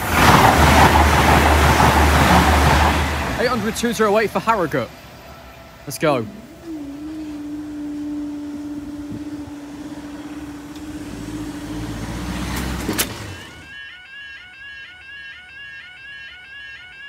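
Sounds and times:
crossing barrier mechanism humming: 0:00.0 - 0:13.7
vehicle engine rumble: 0:00.0 - 0:13.7
barrier clunk: 0:12.4 - 0:13.6.

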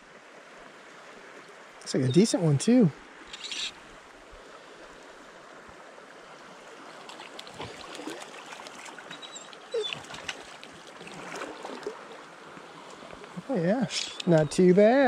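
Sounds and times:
creek water running: 0:00.0 - 0:15.0
fish splashing: 0:07.0 - 0:12.2
short clicks: 0:13.9 - 0:14.5.

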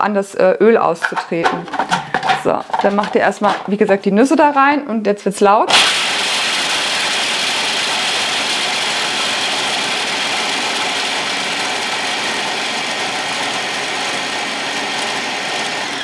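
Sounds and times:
food processor chopping nuts: 0:01.0 - 0:03.8, 0:05.7 - 0:16.0.

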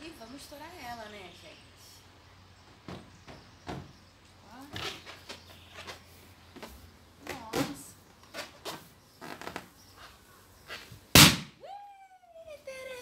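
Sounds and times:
balloon squeaking: 0:07.4 - 0:10.1
balloon bursting bang: 0:11.2 - 0:11.6.

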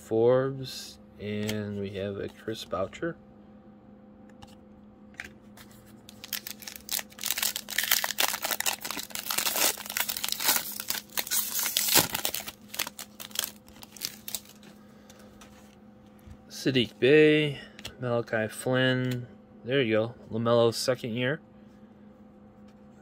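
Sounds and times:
foil wrapper crinkling and tearing: 0:06.0 - 0:14.8.

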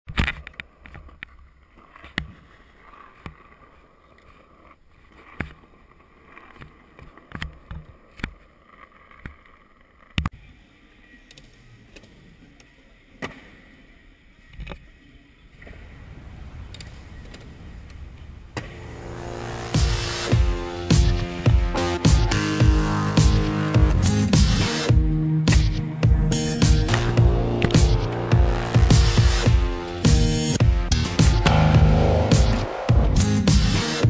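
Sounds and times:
skateboard clacks: 0:00.1 - 0:10.4
skateboard wheels rolling on asphalt: 0:00.1 - 0:25.5.

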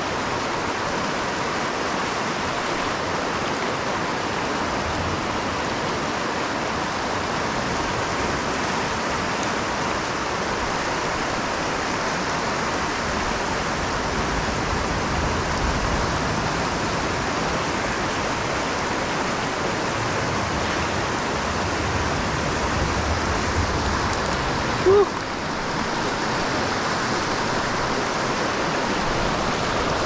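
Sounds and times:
creek water rushing: 0:00.0 - 0:30.0.

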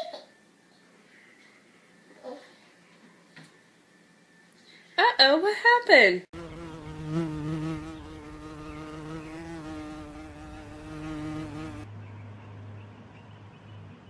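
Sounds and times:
flying insect buzzing: 0:06.4 - 0:11.9.

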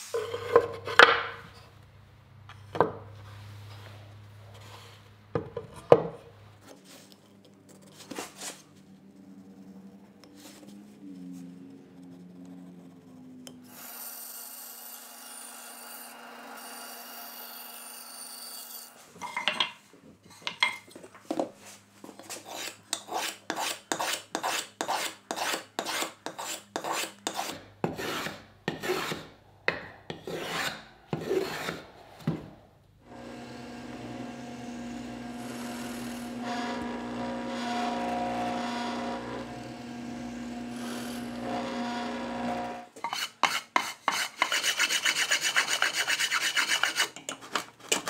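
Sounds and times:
hand tool rasping wood: 0:22.3 - 0:29.3, 0:30.1 - 0:31.8, 0:33.1 - 0:48.0.

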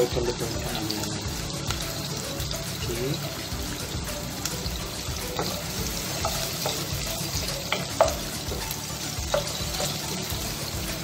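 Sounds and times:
garlic and onion sizzling in oil: 0:00.0 - 0:11.0
wooden spatula clacking and scraping: 0:05.4 - 0:10.4.

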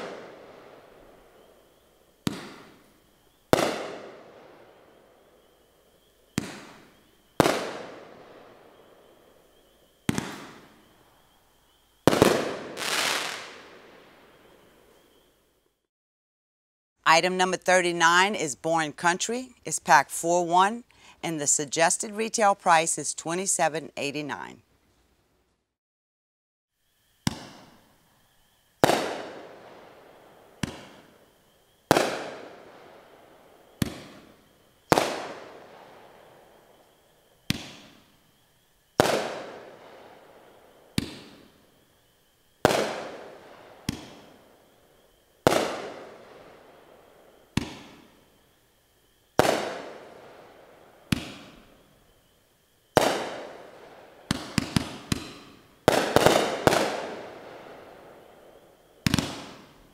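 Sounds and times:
fireworks cake shots echoing: 0:00.0 - 0:01.5, 0:02.2 - 0:02.9, 0:03.5 - 0:05.0, 0:06.3 - 0:08.9, 0:10.0 - 0:10.9, 0:12.0 - 0:14.9, 0:28.8 - 0:31.3, 0:31.9 - 0:36.4, 0:37.4 - 0:38.1, 0:39.0 - 0:41.6, 0:42.6 - 0:44.5, 0:45.4 - 0:48.1, 0:49.4 - 0:51.7, 0:52.9 - 0:59.9
rapid firework pops: 0:02.2 - 0:02.9, 0:03.5 - 0:04.2, 0:06.3 - 0:08.0, 0:10.0 - 0:10.8, 0:12.1 - 0:13.6, 0:27.2 - 0:27.8, 0:28.8 - 0:29.5, 0:30.6 - 0:31.1, 0:31.9 - 0:32.6, 0:33.8 - 0:34.3, 0:34.9 - 0:35.6, 0:37.4 - 0:38.0, 0:39.0 - 0:39.8, 0:40.9 - 0:41.5, 0:42.6 - 0:44.3, 0:45.4 - 0:46.1, 0:47.5 - 0:48.1, 0:49.4 - 0:50.0, 0:51.1 - 0:51.6, 0:53.0 - 0:53.5, 0:54.3 - 0:57.2, 0:59.0 - 0:59.8.

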